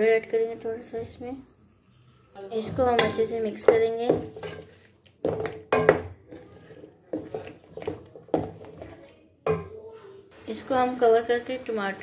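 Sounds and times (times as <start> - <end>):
wooden spoon scraping metal pan: 0.3 - 11.9.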